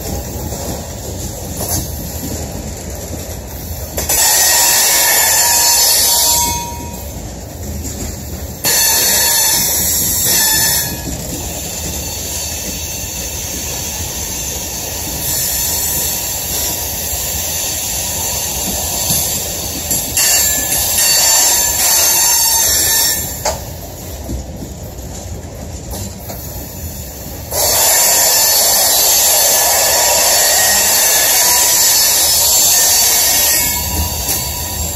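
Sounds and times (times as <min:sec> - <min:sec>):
train wheels squealing on rail: 0:00.0 - 0:34.9.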